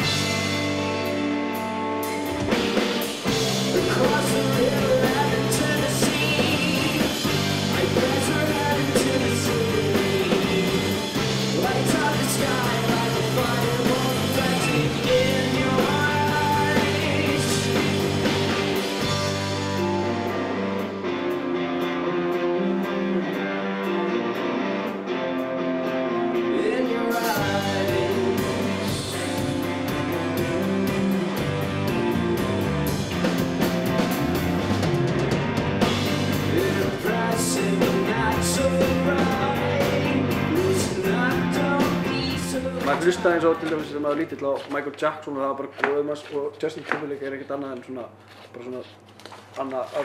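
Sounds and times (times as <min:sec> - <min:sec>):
rock band playing: 0:00.0 - 0:44.2
person singing: 0:03.6 - 0:24.4, 0:26.3 - 0:32.9, 0:36.3 - 0:44.6.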